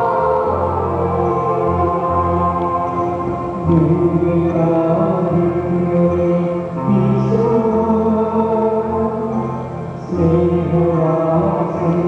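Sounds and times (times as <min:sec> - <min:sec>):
instrumental accompaniment: 0:00.0 - 0:12.0
voices singing a hymn: 0:00.0 - 0:12.0.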